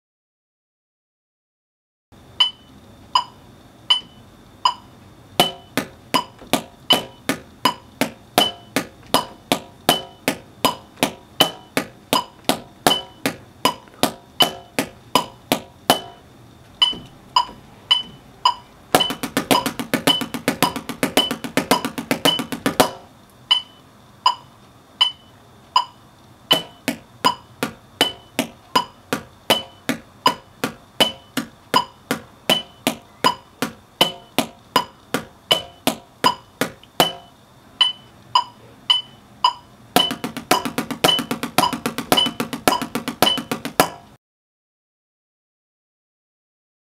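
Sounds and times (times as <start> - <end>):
drumsticks striking a practice pad: 5.4 - 16.2, 16.8 - 23.1, 26.5 - 37.3, 39.5 - 44.2.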